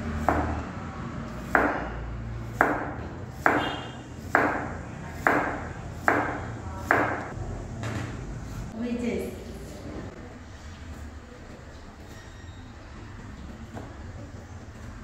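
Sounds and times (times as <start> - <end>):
knife slicing radish on cutting board: 2.5 - 7.2.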